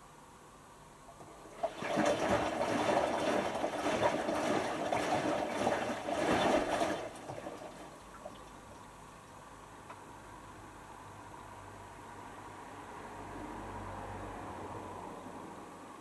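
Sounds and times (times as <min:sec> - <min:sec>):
water sloshing in washing machine drum: 0:01.1 - 0:09.0.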